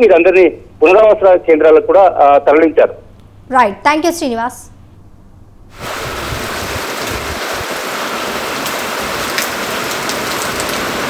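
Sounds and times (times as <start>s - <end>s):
heavy rain pouring: 5.7s - 11.0s.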